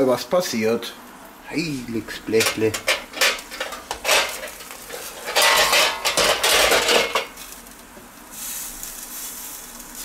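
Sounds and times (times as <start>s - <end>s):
meat sizzling on grill: 0.0s - 10.0s
metal clattering and scraping: 2.4s - 7.3s.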